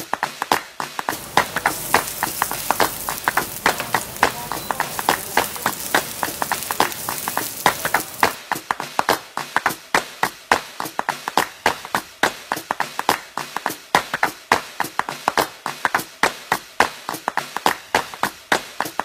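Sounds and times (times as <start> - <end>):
oil sizzling in a frying pan: 1.1 - 8.4.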